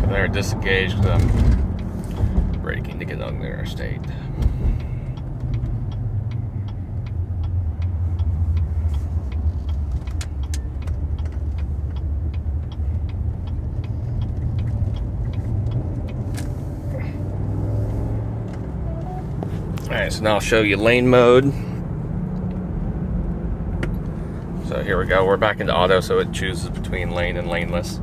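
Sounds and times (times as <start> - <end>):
road and engine rumble: 0.0 - 28.0
turn signal clicking: 1.6 - 19.9.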